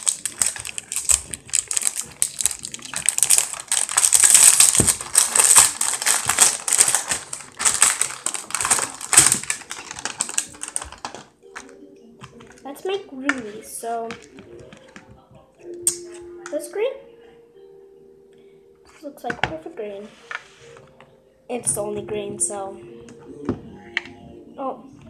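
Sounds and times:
plastic bottles clicking: 0.0s - 12.7s
plastic and cardboard crinkling: 0.0s - 15.4s.

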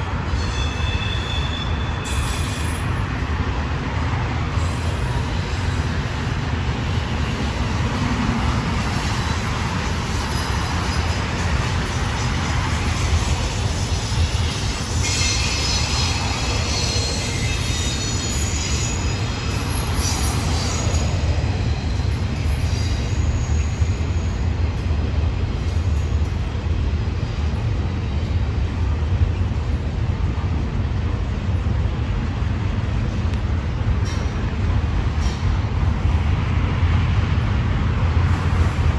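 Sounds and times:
train cars rumbling past: 0.0s - 38.9s
high-pitched wheel squeals: 0.3s - 2.9s, 13.8s - 24.5s.

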